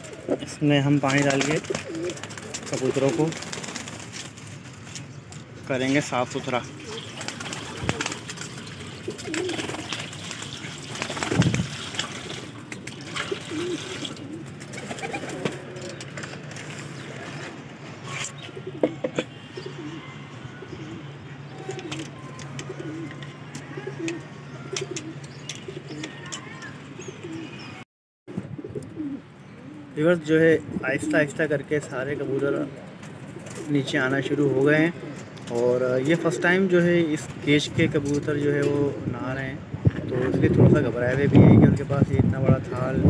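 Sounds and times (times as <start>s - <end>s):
pigeons cooing: 0.0s - 4.1s, 5.9s - 27.8s, 28.4s - 31.4s, 32.0s - 41.5s
water poured into steel tray: 9.9s - 14.2s.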